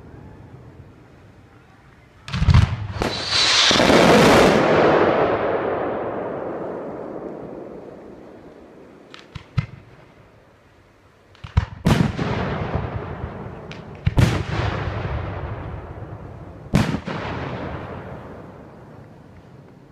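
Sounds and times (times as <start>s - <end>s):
firework shells bursting: 2.3s - 5.8s
rumble after firework bangs: 2.3s - 10.1s, 11.4s - 19.6s
small firework pops: 8.5s - 10.0s, 11.3s - 12.2s, 13.6s - 14.4s.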